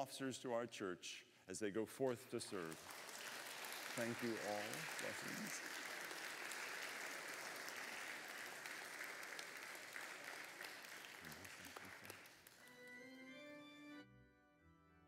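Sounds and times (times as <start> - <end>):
congregation applauding: 2.1 - 13.4
organ playing sustained chords: 11.3 - 15.0.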